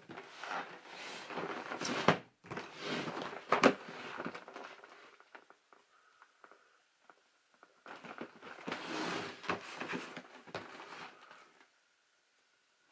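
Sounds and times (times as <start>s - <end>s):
cardboard box rubbing and scraping: 8.6s - 10.0s.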